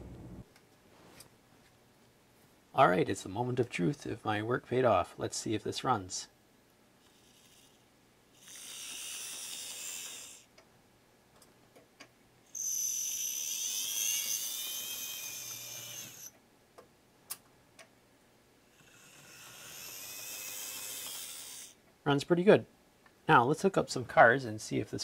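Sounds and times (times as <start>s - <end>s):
model train motor whining: 8.4s - 10.5s, 12.5s - 16.3s, 18.7s - 21.8s.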